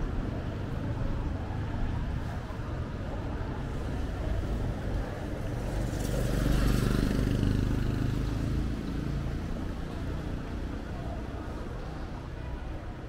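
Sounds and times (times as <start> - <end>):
low street rumble: 0.0 - 13.0
motorbike passing: 3.4 - 11.6.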